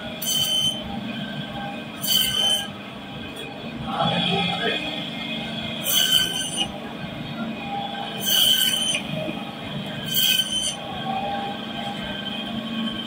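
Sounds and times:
band saw whining: 0:00.0 - 0:00.9, 0:01.9 - 0:02.8, 0:04.2 - 0:06.7, 0:07.6 - 0:13.0
band saw screeching: 0:00.2 - 0:00.9, 0:02.0 - 0:02.8, 0:05.8 - 0:06.7, 0:08.2 - 0:09.1, 0:10.0 - 0:10.9.

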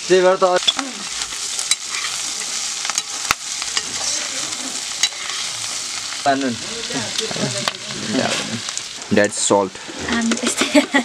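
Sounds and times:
vegetables sizzling in a pan: 0:00.0 - 0:11.0
metal spatula scraping a pan: 0:00.6 - 0:08.7.

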